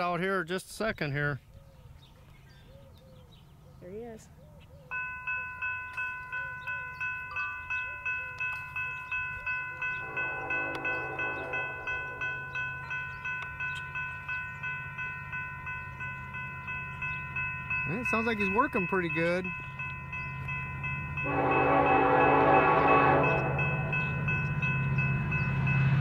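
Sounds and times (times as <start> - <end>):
crossing signal bell ringing: 4.9 - 26.0
diesel locomotive rumble: 6.1 - 26.0.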